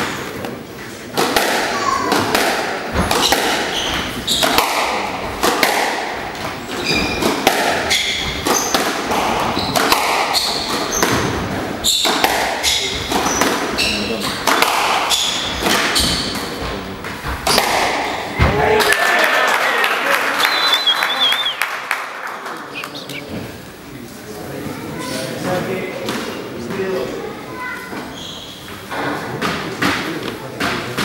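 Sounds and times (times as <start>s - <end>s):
squash ball smacking: 1.2s - 13.8s, 14.4s - 16.5s, 17.4s - 18.4s
sneakers squeaking on wooden floor: 3.0s - 4.7s, 6.4s - 14.4s, 15.1s - 18.4s, 27.9s - 28.9s.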